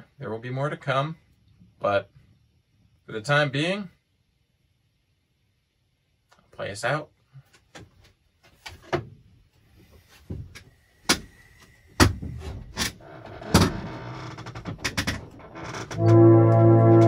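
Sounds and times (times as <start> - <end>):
harmonium chord: 16.0 - 17.0.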